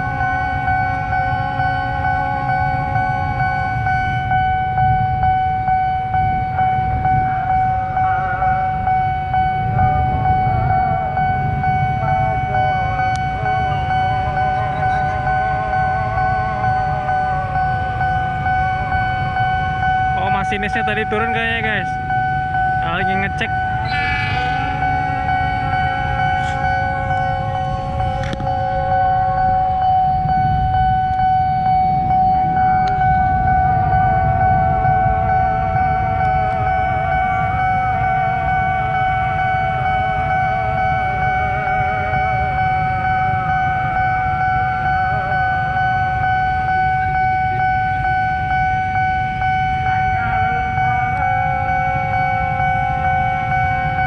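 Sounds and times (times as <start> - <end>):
low rumble: 0.0 - 20.7, 21.4 - 38.8
level crossing alarm tone: 0.0 - 54.0
falling tone: 23.5 - 32.8.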